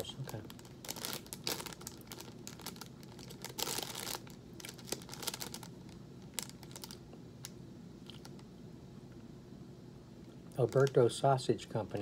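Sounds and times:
snack bag crinkling: 0.0 - 8.5, 10.5 - 11.1.

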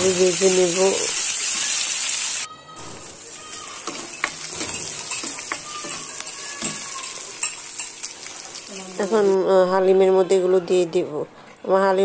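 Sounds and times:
food sizzling in hot oil: 0.0 - 9.7
metal ladle scraping a pan: 3.8 - 9.2.

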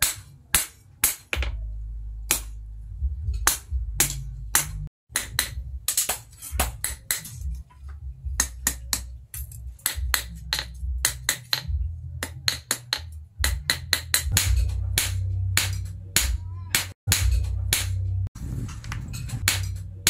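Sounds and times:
steady low rumble: 1.4 - 20.0
hammer clanking on anvil: 8.4 - 18.0.

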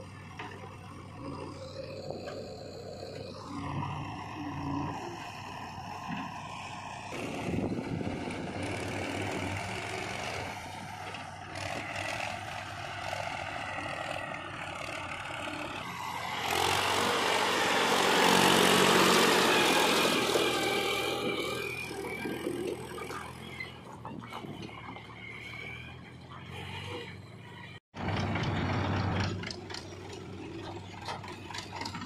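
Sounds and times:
diesel tractor engine running: 0.0 - 32.0.

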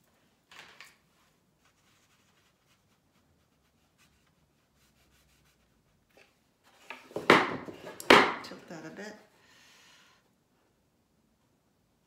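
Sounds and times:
brush rubbing on paper: 1.3 - 6.1.

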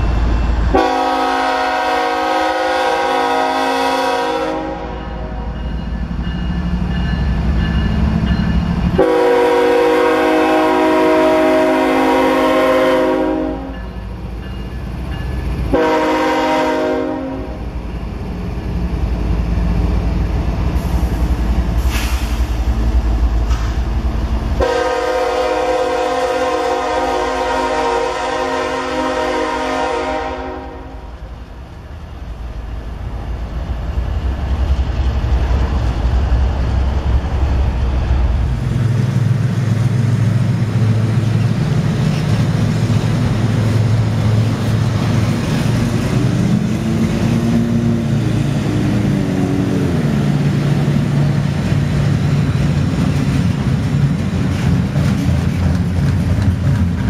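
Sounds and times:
locomotive horn: 0.7 - 5.5, 9.0 - 13.8, 15.7 - 17.6, 24.6 - 31.2
freight cars rumbling and clattering: 32.1 - 57.0.

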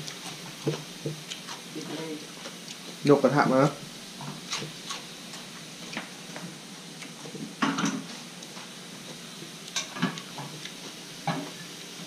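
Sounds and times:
frying pan and utensils clinking: 7.6 - 8.1, 9.7 - 10.6, 11.2 - 11.8
kitchenware clatter: 7.6 - 8.1, 9.8 - 10.6, 11.2 - 11.7.

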